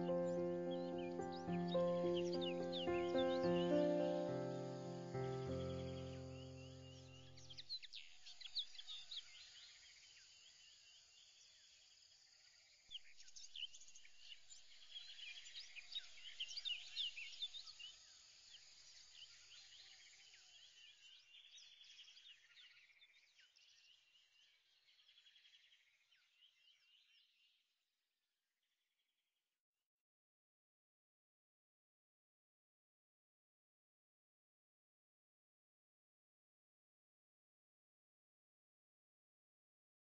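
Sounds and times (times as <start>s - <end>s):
birds chirping: 0.0s - 9.4s.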